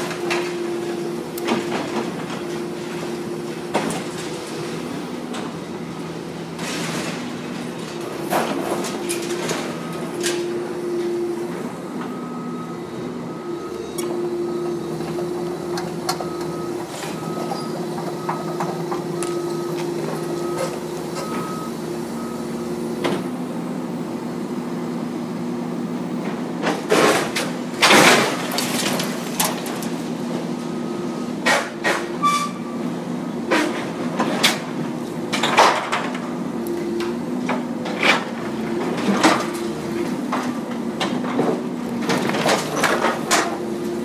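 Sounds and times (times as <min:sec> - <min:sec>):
excavator engine droning: 0:00.0 - 0:44.0
faint beep: 0:19.2 - 0:22.6
crashes of metal and debris: 0:26.9 - 0:30.1.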